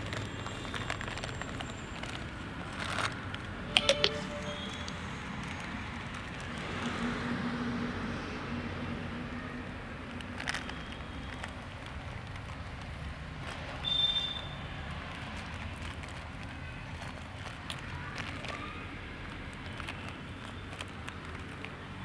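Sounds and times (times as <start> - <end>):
outdoor background noise: 0.0 - 22.0.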